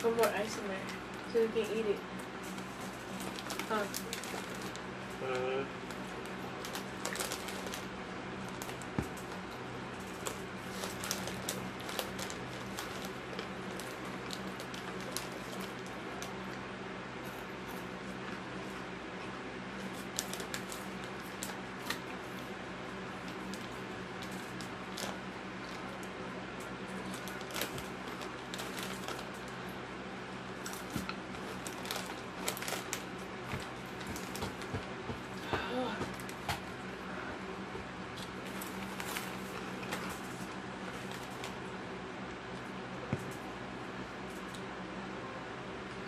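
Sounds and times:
foil snack bag crinkling: 2.5 - 16.6, 19.8 - 26.1, 26.8 - 29.6, 30.4 - 35.4, 38.1 - 41.7
crunching chips: 2.7 - 16.6, 19.8 - 26.0, 26.9 - 29.6.

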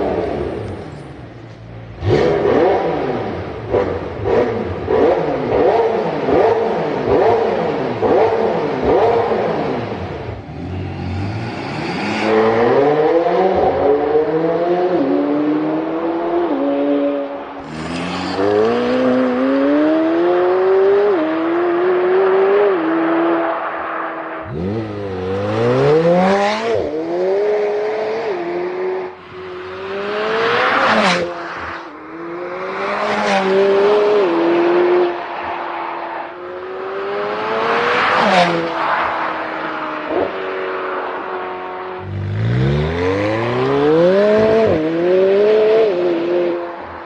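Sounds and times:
sports car accelerating hard: 1.9 - 47.0
car passing loudly: 2.0 - 47.0.

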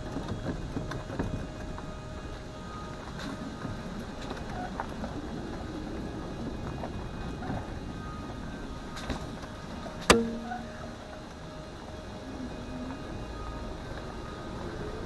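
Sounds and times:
vehicle rumbling on rough road: 0.0 - 15.0
sharp knock: 10.1 - 10.5.

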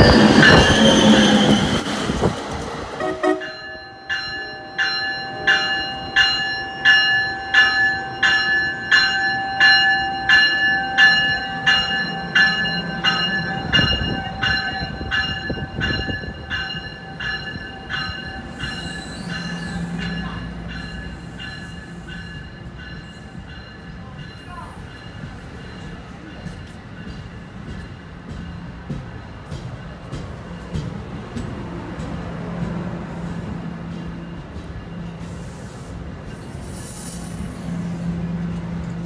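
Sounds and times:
train rumbling past: 0.0 - 39.0
bell ringing: 3.2 - 27.1.

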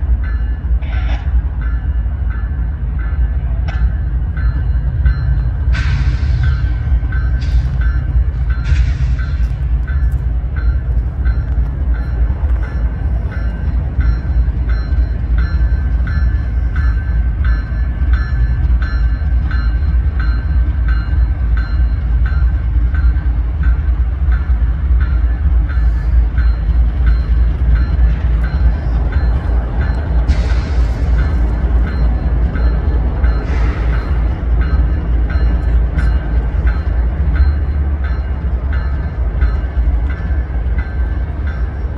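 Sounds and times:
diesel locomotives rumbling: 0.0 - 41.9.

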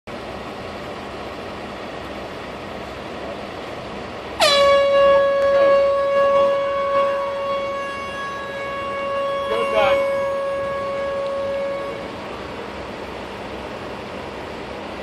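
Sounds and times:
steady background noise: 0.1 - 15.0
air horn long blast: 4.4 - 12.7.

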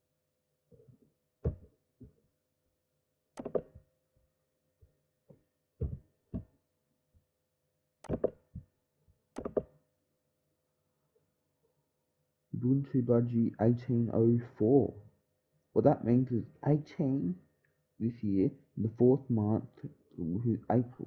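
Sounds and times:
clicks and knocks at desk: 3.4 - 3.8, 8.0 - 8.6, 9.4 - 9.8.

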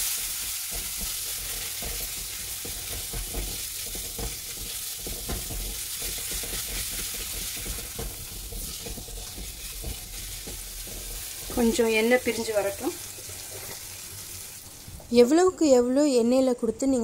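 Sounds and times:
spatula scraping a pan: 0.0 - 14.9
masala sizzling in oil: 0.0 - 15.5.

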